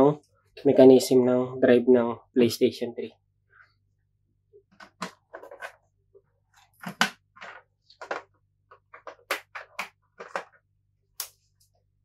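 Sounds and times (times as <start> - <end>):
console parts clicking and tapping: 4.6 - 5.8, 6.6 - 10.6.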